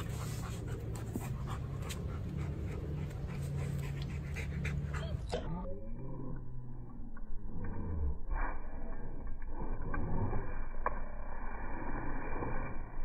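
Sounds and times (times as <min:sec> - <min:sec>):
dog panting: 0:00.0 - 0:05.5
steady low hum: 0:00.0 - 0:13.0.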